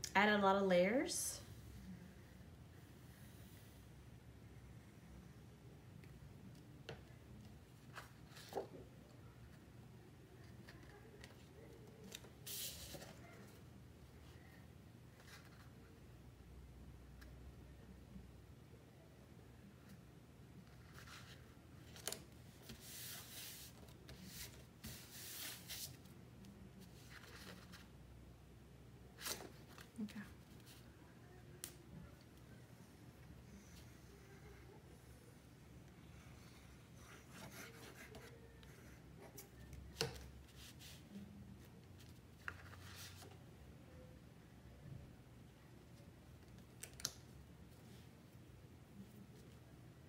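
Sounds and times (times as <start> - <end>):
paper rustling and sliding: 12.0 - 13.2, 20.8 - 26.0.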